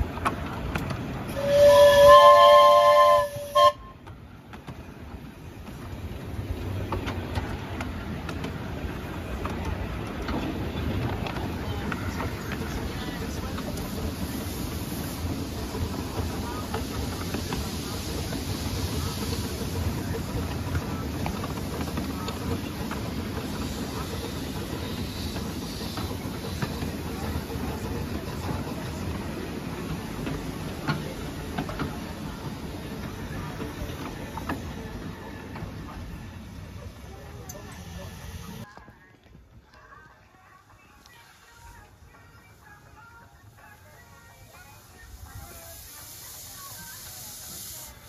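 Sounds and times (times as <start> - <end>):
miniature steam locomotive running: 0.0 - 38.7, 41.0 - 48.0
wheels rumbling on rail: 0.0 - 39.8
steam whistle blast: 1.3 - 4.0.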